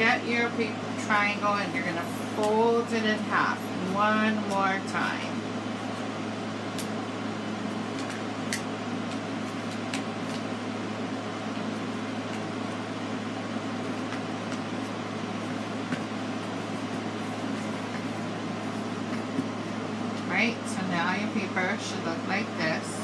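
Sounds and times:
air conditioner hum: 0.0 - 23.0
paper being folded: 7.7 - 10.5, 13.8 - 19.8.

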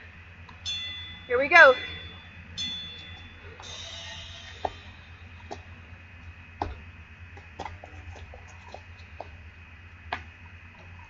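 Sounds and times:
low outdoor hum: 0.0 - 11.0
sneakers tapping on concrete: 6.6 - 9.4.

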